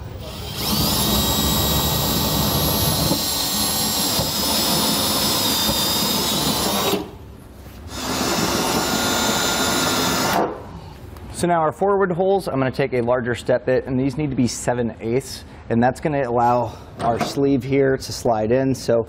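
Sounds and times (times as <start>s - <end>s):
cordless drill motor whine: 0.2s - 7.1s, 7.9s - 10.4s.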